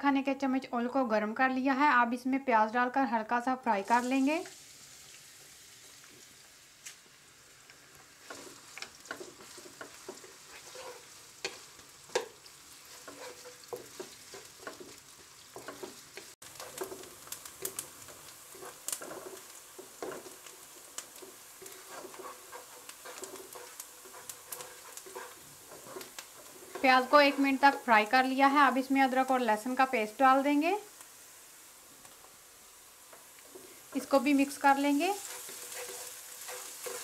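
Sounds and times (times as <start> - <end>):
onion sizzling in oil: 3.4 - 37.0
wooden spatula scraping a wok: 8.0 - 28.2, 33.1 - 37.0.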